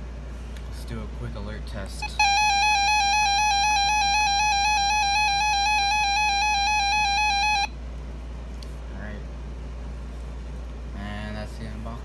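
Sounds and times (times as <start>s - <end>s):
warbling electronic alarm tone: 2.0s - 7.8s.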